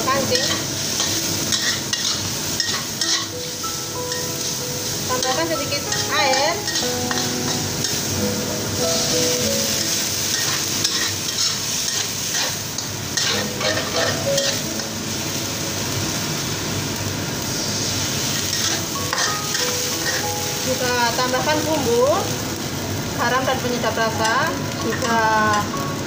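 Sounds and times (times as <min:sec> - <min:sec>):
food sizzling in a wok: 0:00.0 - 0:26.0
spatula scraping a wok: 0:00.2 - 0:03.3, 0:09.8 - 0:14.6, 0:17.6 - 0:20.2.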